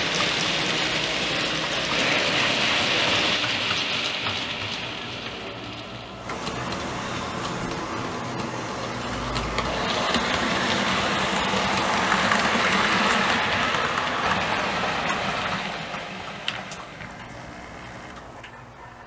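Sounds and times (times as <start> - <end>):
sharp track clicks: 0.0 - 18.6
model train rolling whirr: 0.0 - 19.0.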